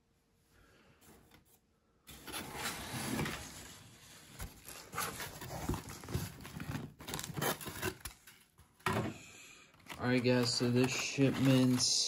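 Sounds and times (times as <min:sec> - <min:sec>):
cardboard box rustling and scraping: 0:02.1 - 0:08.0.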